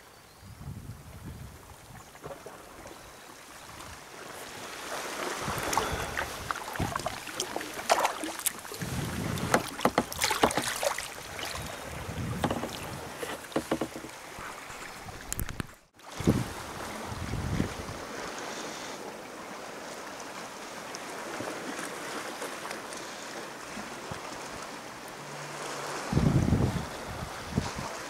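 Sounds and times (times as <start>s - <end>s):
water dripping and lapping: 1.7s - 16.4s
paddle blades splashing: 1.8s - 28.0s.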